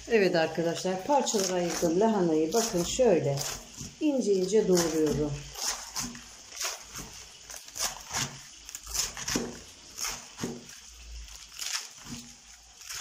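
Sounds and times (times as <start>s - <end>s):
knife slicing cabbage: 0.7s - 13.0s.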